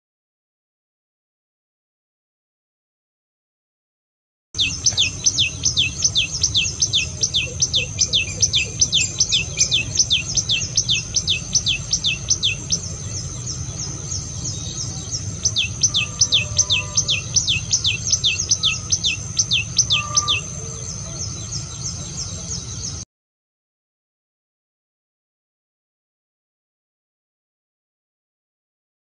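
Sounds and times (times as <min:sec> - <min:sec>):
steady high whine: 0:04.6 - 0:23.0.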